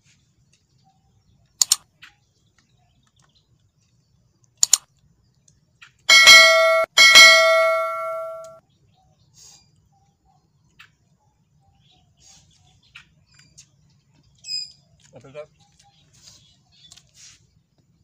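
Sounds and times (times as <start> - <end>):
mouse double click: 1.6 - 1.8, 4.6 - 4.8
bell chime: 6.1 - 8.6.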